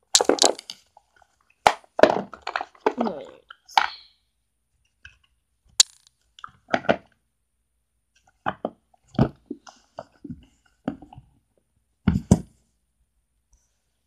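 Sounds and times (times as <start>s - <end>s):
container knocks and thumps: 0.1s - 0.7s, 1.7s - 3.2s, 12.0s - 12.6s.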